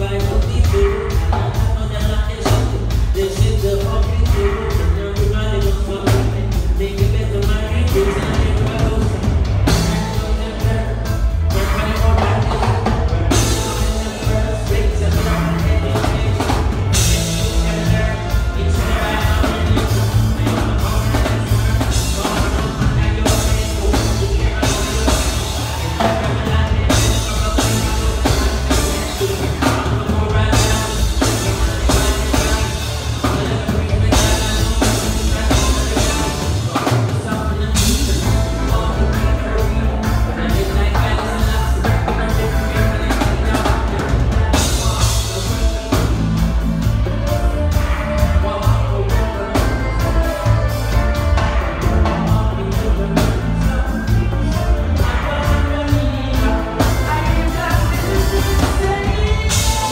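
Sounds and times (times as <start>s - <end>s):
drum kit: 0.0s - 59.9s
heavy bass: 0.0s - 59.9s
man singing into microphone: 0.0s - 59.9s
reggae band playing: 0.0s - 59.9s.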